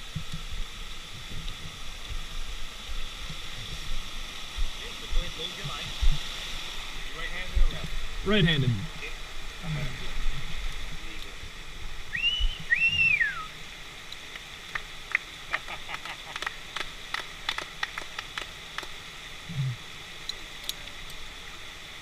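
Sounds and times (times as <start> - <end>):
waterfall rushing: 0.0 - 22.0
two-part whistle: 12.1 - 13.6.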